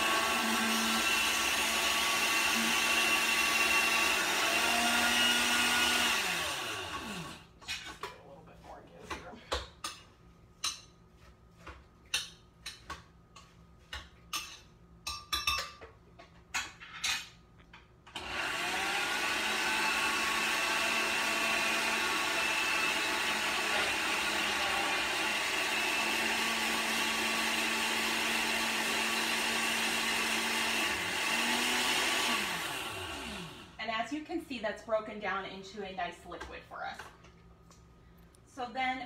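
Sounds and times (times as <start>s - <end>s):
blender motor whirring: 0.0s - 7.5s, 18.1s - 33.8s.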